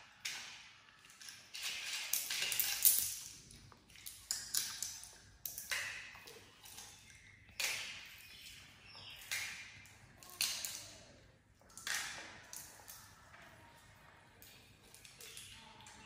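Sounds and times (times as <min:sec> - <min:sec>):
monkey cracking seed shells: 0:01.0 - 0:07.8.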